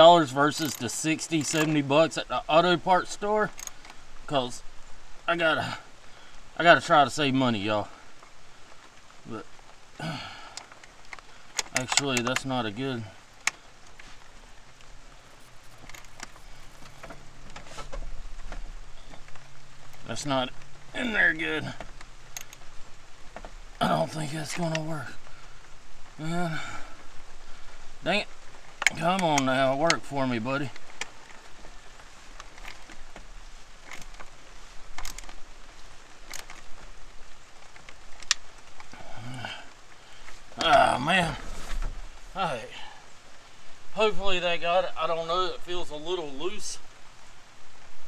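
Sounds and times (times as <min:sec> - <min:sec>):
rustling: 0:00.0 - 0:44.2
hose fitting rubbing: 0:15.2 - 0:18.2.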